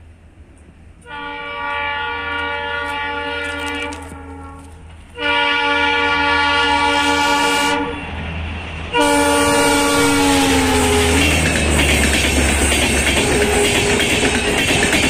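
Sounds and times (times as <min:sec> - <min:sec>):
low rumble of passing train: 0:00.0 - 0:15.0
locomotive horn blasts: 0:01.0 - 0:08.0, 0:08.9 - 0:11.5, 0:13.2 - 0:14.2.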